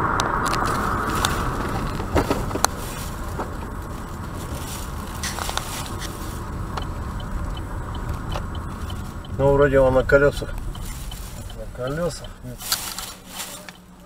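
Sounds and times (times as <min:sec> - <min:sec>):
road and engine noise in car: 0:00.0 - 0:14.0
faint regular ticking: 0:04.7 - 0:14.0.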